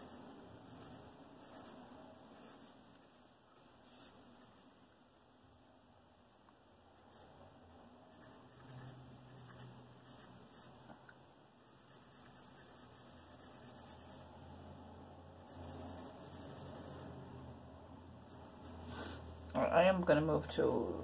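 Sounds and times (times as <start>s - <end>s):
charcoal scratching on paper: 0.0s - 1.8s, 7.1s - 10.8s, 11.6s - 14.3s, 15.4s - 17.2s, 18.2s - 18.9s.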